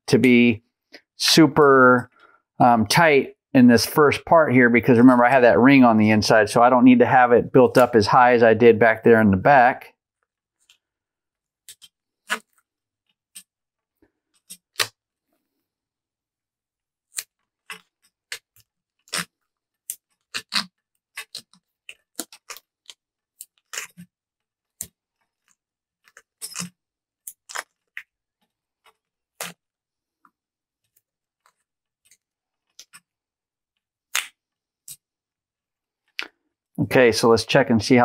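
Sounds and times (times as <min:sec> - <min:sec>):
masking tape clicking and crackling: 0:17.2 - 0:24.1, 0:26.1 - 0:28.0.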